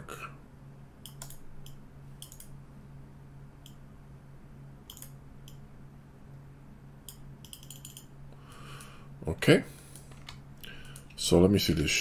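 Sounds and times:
low electrical hum: 0.0 - 12.0
computer mouse clicks: 1.0 - 2.6, 4.8 - 5.6, 7.0 - 8.1.

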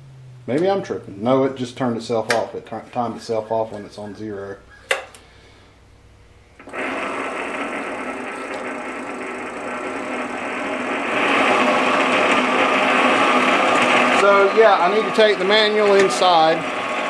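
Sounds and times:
lathe motor whirring: 6.6 - 17.0.

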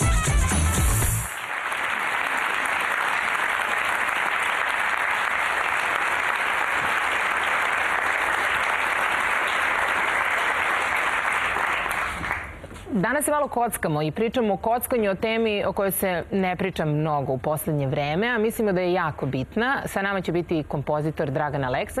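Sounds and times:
music with heavy beat: 0.0 - 1.3
audience applauding: 1.2 - 12.6.

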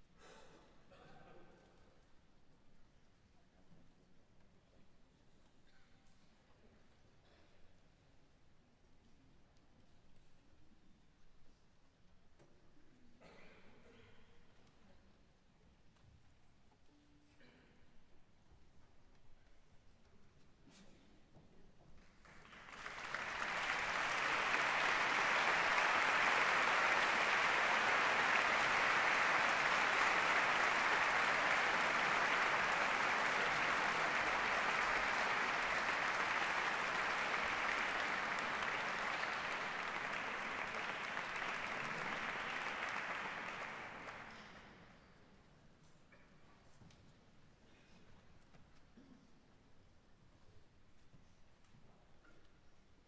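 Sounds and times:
audience applauding: 22.3 - 44.7.

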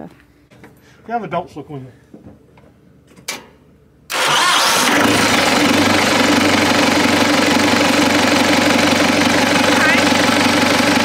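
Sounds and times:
tractor engine starting and idling: 4.1 - 11.0.

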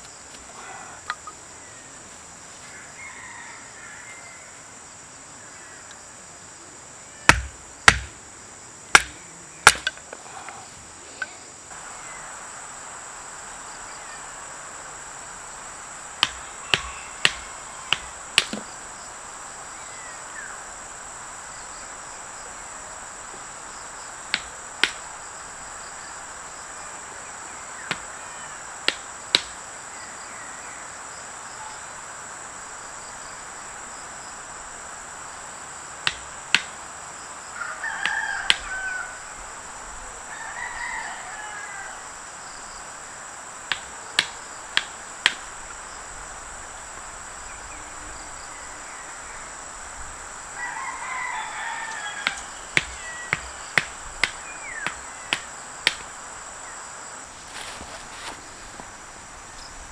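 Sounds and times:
insects buzzing: 0.0 - 59.9
wooden baton knocking knife spine: 9.0 - 10.0.

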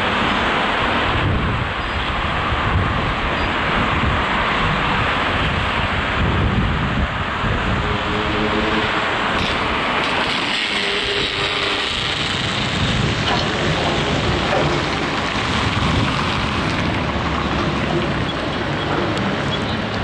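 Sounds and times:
traffic: 0.0 - 20.0
rumbling machinery: 7.4 - 20.0.

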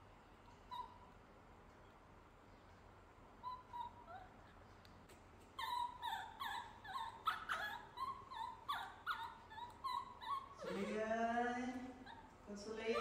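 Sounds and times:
baby monkey crying: 0.7 - 1.1, 3.4 - 4.6, 5.6 - 11.3, 11.9 - 13.0.

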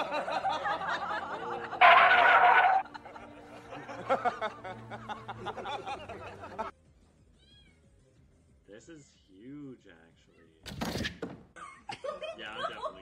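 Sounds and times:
people laughing: 0.0 - 6.7, 11.6 - 13.0.

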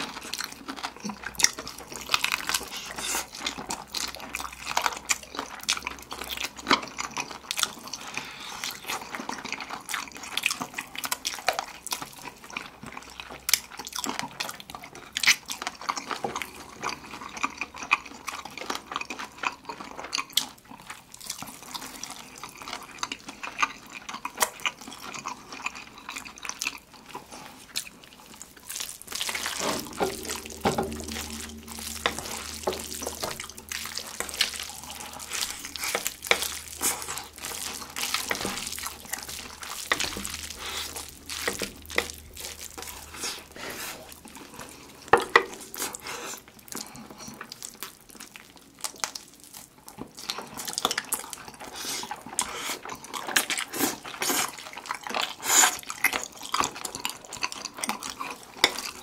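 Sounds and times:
chewing fried chicken: 0.0 - 59.0
slurping noodles: 27.0 - 47.5, 51.5 - 56.8.

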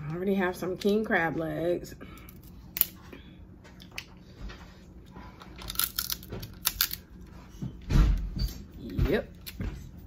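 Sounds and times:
crab shells cracking: 5.6 - 7.0.

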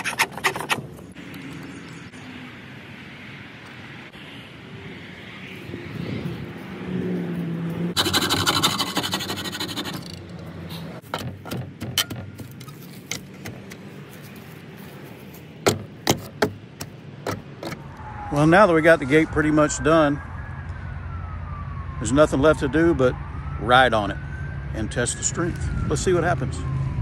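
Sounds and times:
hacksaw cutting: 0.0 - 0.9, 8.0 - 10.4
metal and wood scraping: 0.0 - 1.1, 8.0 - 14.4.

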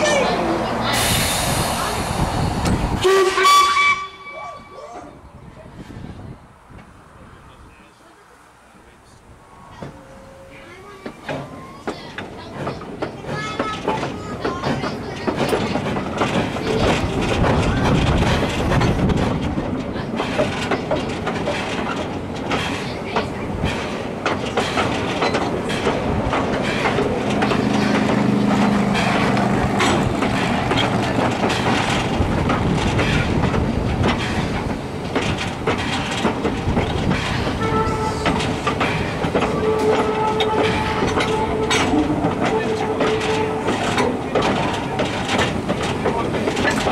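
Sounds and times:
train wheels clattering: 9.7 - 46.9.

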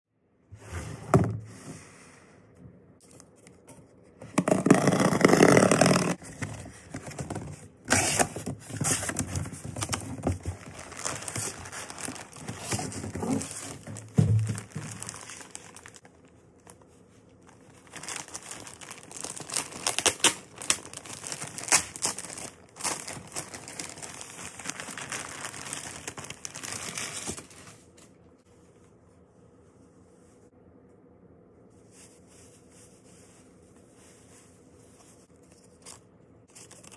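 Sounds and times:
plastic packaging crinkling: 4.5 - 28.1
packing tape ripping: 17.9 - 27.5.

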